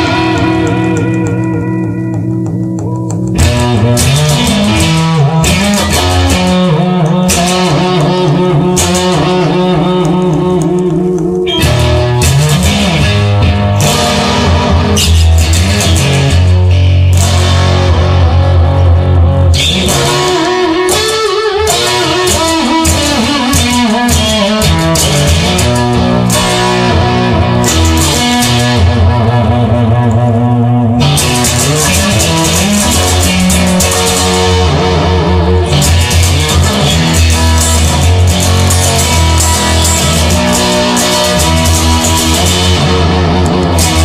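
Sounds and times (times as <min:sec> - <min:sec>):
steady drum beat: 0:00.0 - 0:06.7
bass: 0:00.0 - 0:44.0
electric guitar: 0:00.0 - 0:44.0.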